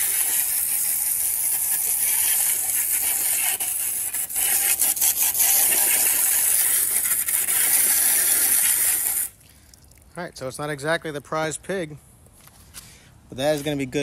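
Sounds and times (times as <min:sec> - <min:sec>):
hose spray hissing on metal: 0:00.0 - 0:09.4.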